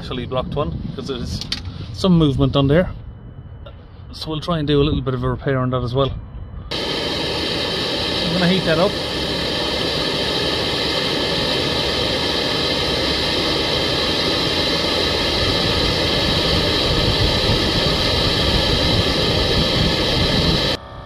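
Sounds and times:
blowtorch hissing flame: 6.7s - 20.8s.

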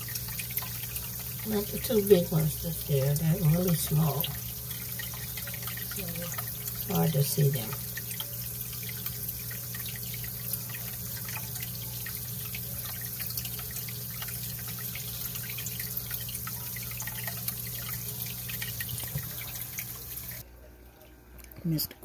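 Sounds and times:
water trickling and dripping: 0.0s - 20.4s
low pump hum: 0.0s - 20.5s.

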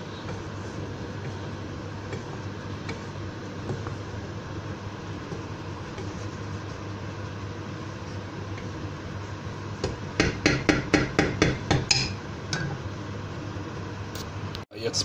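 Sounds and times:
steady low hum: 0.0s - 15.0s
wooden spatula knocking pan rim: 9.8s - 12.1s.

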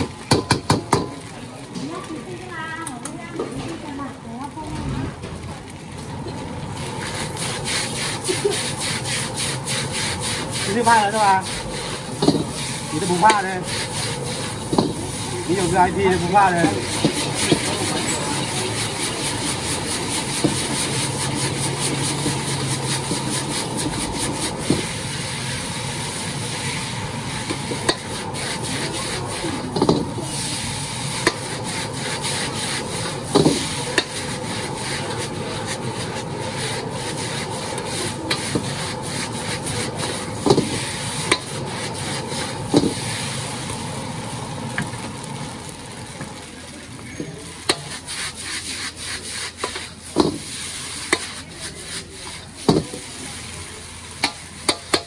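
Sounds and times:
sizzling: 0.0s - 55.0s
ladle knocking on wok: 0.3s - 1.2s
metal utensils scraping wok: 6.8s - 43.6s, 47.0s - 55.0s.

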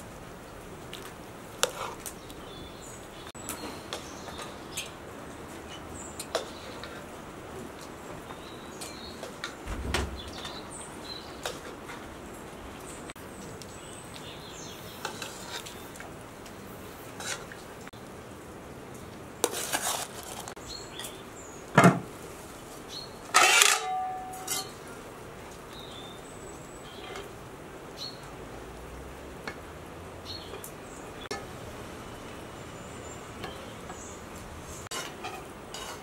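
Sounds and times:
steady low hiss: 0.0s - 19.4s
metal spoon scraping a pot: 23.4s - 24.8s, 34.9s - 36.0s.

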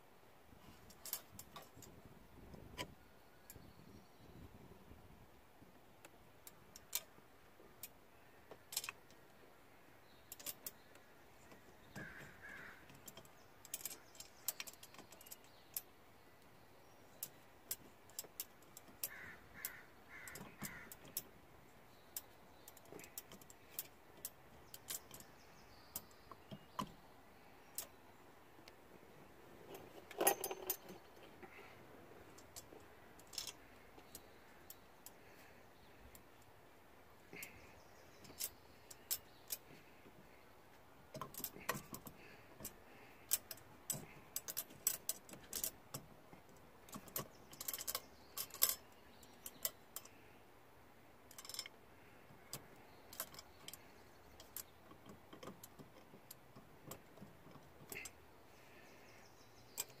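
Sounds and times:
metal bolts clicking and clinking: 29.6s - 31.6s, 32.2s - 35.2s, 41.1s - 50.2s, 51.3s - 51.8s.

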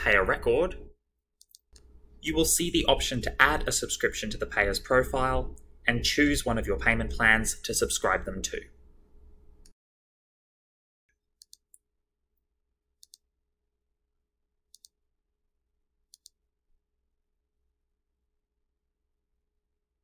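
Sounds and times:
computer mouse clicks: 1.4s - 1.9s, 11.4s - 11.8s, 13.0s - 13.2s, 16.1s - 16.4s.

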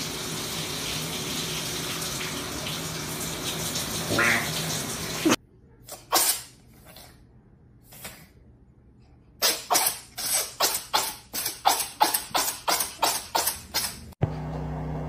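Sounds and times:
shower running: 0.0s - 5.4s.

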